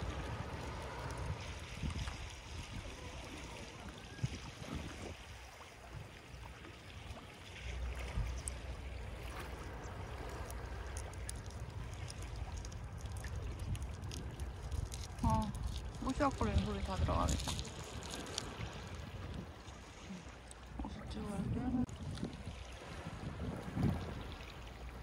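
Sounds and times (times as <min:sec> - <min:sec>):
wind buffeting microphone: 0:00.0 - 0:06.3, 0:07.8 - 0:20.2, 0:20.8 - 0:25.0
waves lapping against steps: 0:00.0 - 0:25.0.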